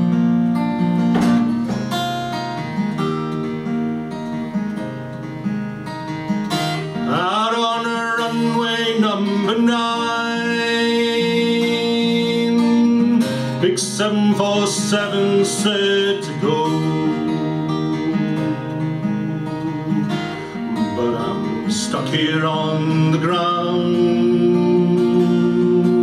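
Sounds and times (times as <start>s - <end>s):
acoustic guitar: 0.0s - 26.0s
man singing: 7.0s - 26.0s.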